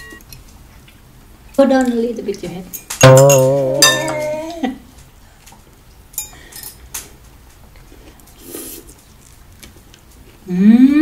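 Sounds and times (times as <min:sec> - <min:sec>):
cutlery clinking on dishes: 0:02.7 - 0:04.4, 0:06.2 - 0:07.1
quiet chewing: 0:06.9 - 0:10.5.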